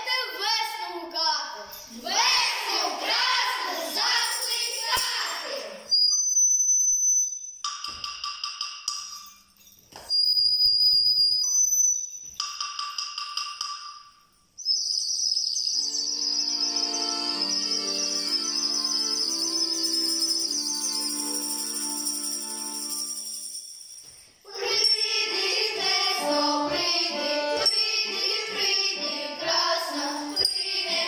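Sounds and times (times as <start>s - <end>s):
children chanting: 1.9s - 5.8s, 24.5s - 31.0s
whistled bird-like chirping: 5.9s - 7.6s, 10.1s - 12.3s, 14.6s - 21.1s
music with held notes: 15.8s - 23.6s, 24.5s - 31.0s.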